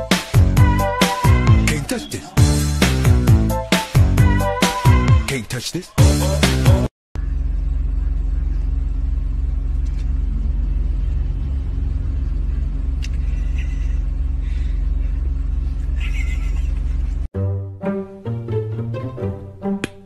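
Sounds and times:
car engine and road noise: 7.2s - 17.3s.

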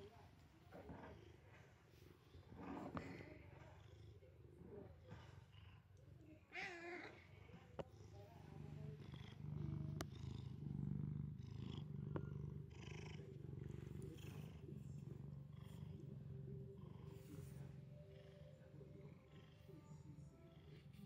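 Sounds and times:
cat purring: 0.0s - 21.0s.

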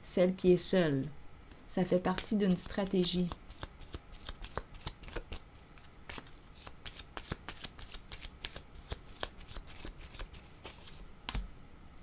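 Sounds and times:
cards being shuffled: 2.1s - 11.5s.

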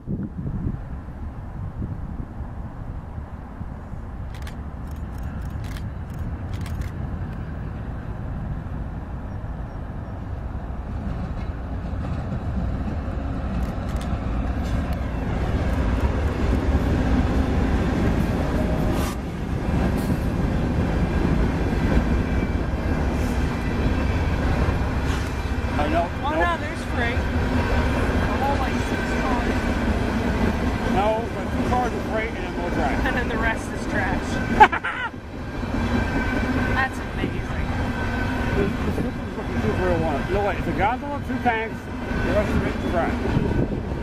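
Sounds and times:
freight train rumbling past: 0.0s - 44.0s
sharp clicks: 4.3s - 7.4s, 13.5s - 14.2s
freight cars rolling on rails: 9.8s - 44.0s.

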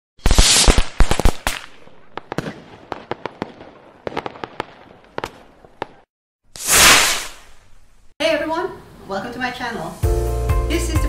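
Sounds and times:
sharp crackling pops: 0.2s - 3.5s, 4.1s - 8.1s.

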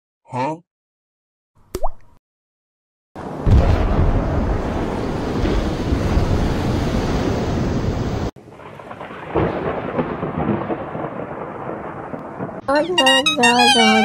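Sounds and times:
deep explosion rumble: 3.2s - 12.6s
rumbling thunder: 3.2s - 12.6s
thunder clap: 3.2s - 14.0s
rain hiss: 4.2s - 10.0s.

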